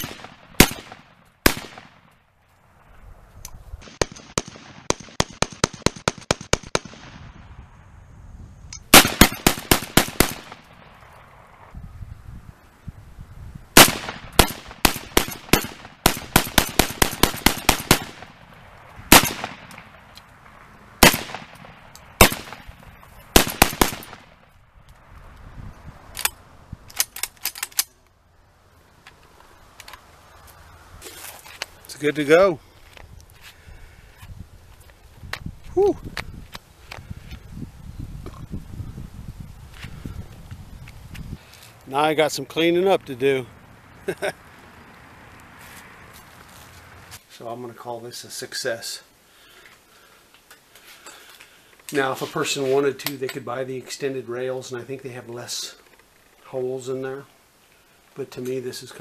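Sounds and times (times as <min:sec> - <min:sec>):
shotgun firing rapid shots: 0:00.0 - 0:02.0, 0:03.8 - 0:07.3, 0:08.9 - 0:10.8, 0:13.8 - 0:18.4, 0:19.1 - 0:19.9, 0:21.0 - 0:21.6, 0:22.2 - 0:22.7, 0:23.4 - 0:24.4.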